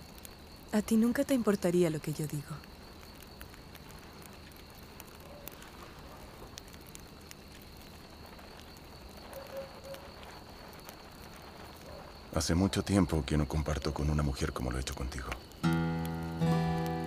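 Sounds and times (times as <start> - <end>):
low hiss: 0.0 - 17.0
faint ticks: 2.1 - 12.1.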